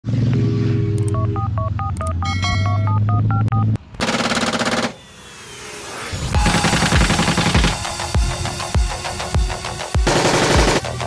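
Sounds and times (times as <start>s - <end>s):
heavy engine drone: 0.0s - 11.0s
telephone keypad beeps: 1.0s - 3.8s
machine-gun fire: 4.0s - 5.0s, 6.4s - 7.9s, 10.0s - 11.0s.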